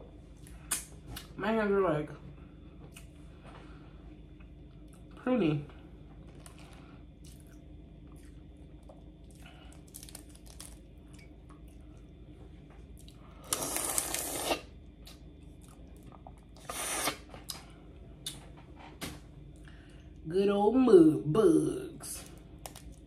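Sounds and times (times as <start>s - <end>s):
chewing: 6.2s - 12.1s
crawfish shells cracking: 9.6s - 11.3s, 22.3s - 23.0s
loud slurp: 16.6s - 17.3s.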